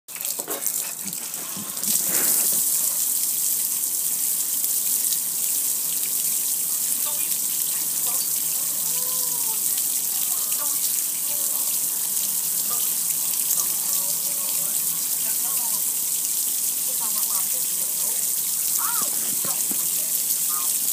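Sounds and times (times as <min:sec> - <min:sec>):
water spraying on metal grill: 0:00.1 - 0:20.9.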